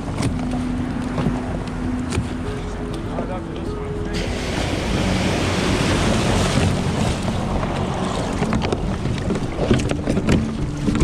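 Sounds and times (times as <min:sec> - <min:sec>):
knocks and clicks on kayak hull: 0:00.0 - 0:02.4, 0:06.5 - 0:11.0
wind buffeting microphone: 0:00.0 - 0:11.0
wave whitewash rushing: 0:04.1 - 0:09.9.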